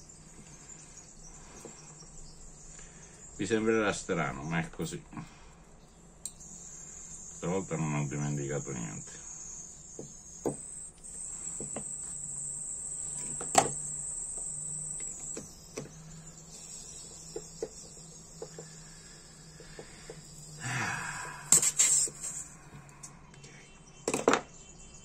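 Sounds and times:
high-pitched whine: 0.0s - 25.0s.

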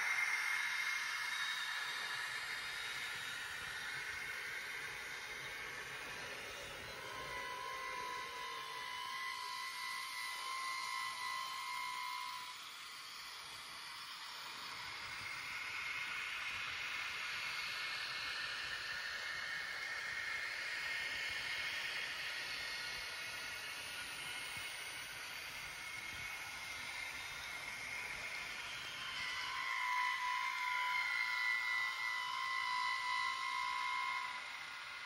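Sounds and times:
model train motors whirring: 0.0s - 35.0s.

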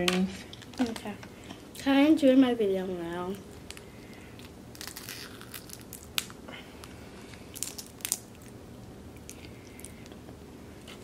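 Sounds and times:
crab shell cracking: 3.6s - 6.4s, 7.5s - 8.6s.

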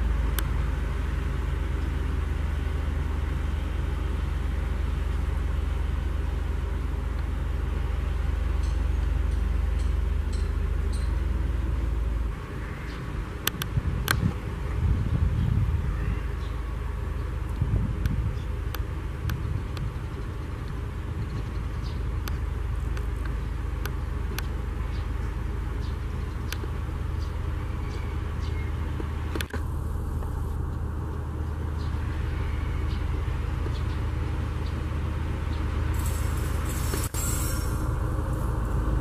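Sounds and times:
diesel engine low hum: 0.0s - 39.0s
wheels squealing on rails: 35.9s - 39.0s.

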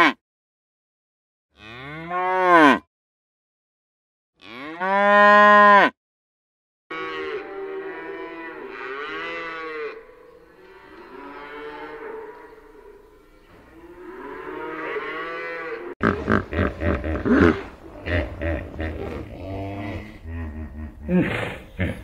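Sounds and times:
cattle mooing: 6.9s - 22.0s.

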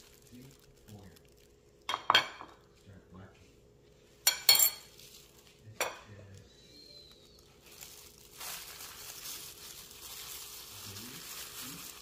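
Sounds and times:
crinkly rustling of breadcrumbs: 0.0s - 1.6s, 4.9s - 6.4s, 7.0s - 12.0s.

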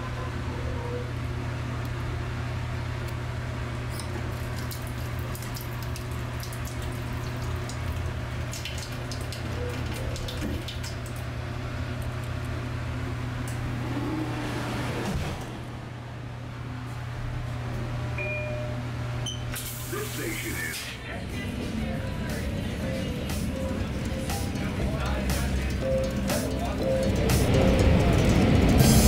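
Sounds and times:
water running into sink: 4.0s - 11.4s
steady low hum: 20.2s - 29.0s.

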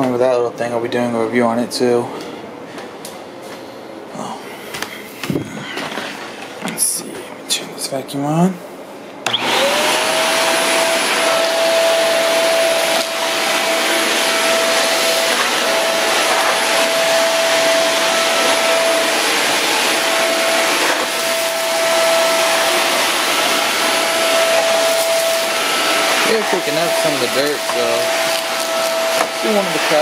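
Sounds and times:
vacuum cleaner motor whine: 9.2s - 30.0s.

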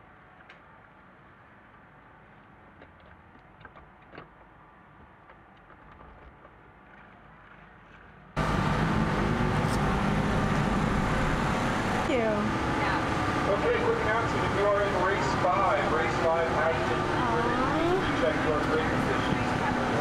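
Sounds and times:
loud motorcycle engine drone: 8.4s - 20.0s.

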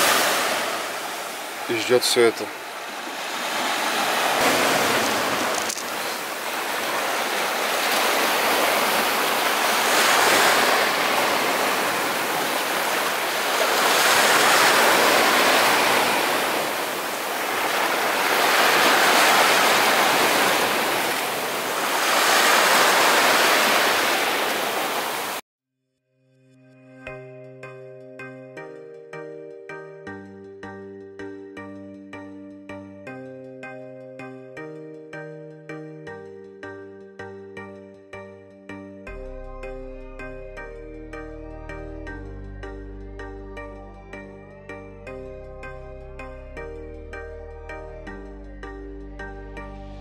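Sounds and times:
waves breaking on sandy shore: 0.0s - 25.4s.

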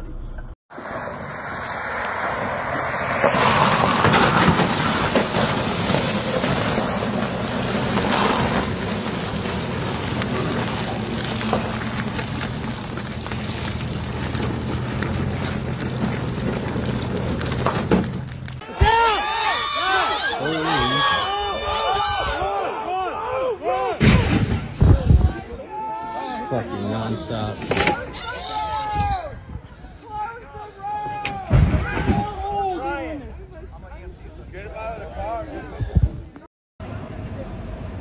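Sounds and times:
truck engine humming: 0.1s - 18.6s, 36.8s - 38.0s.

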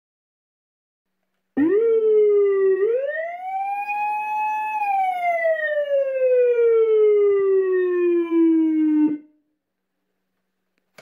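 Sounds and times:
police siren wailing: 1.6s - 9.4s.

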